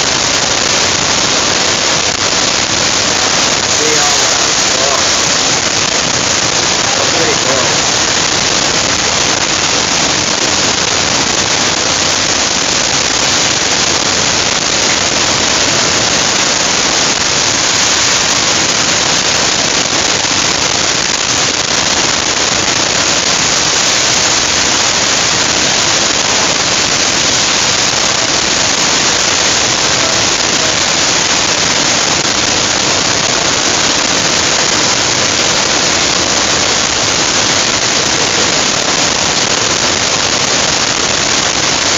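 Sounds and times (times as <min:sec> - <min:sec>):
rush of falling water: 0:00.0 - 0:41.9.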